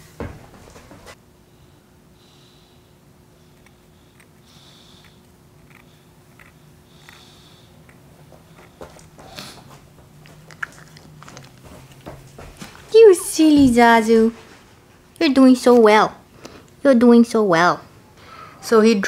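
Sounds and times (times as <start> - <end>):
metal scaler scraping tooth: 5.0 - 7.4.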